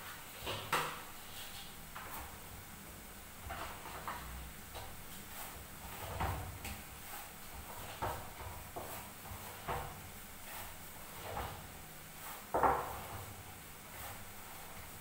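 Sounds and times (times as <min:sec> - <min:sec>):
hands kneading dough on metal: 0:03.3 - 0:15.0.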